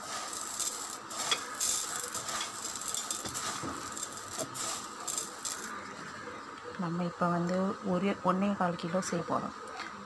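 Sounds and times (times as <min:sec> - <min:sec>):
dry grains rustling: 0:00.0 - 0:05.8.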